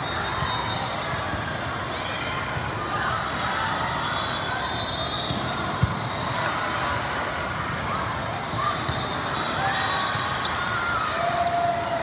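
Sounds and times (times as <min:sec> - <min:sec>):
sneaker squeaks: 0:02.4 - 0:06.6, 0:07.6 - 0:11.7.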